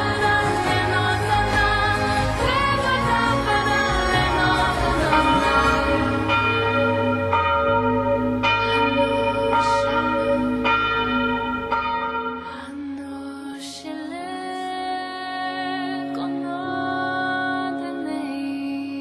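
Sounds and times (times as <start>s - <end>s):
low drone: 0.0s - 13.5s
church bells ringing: 4.2s - 12.8s.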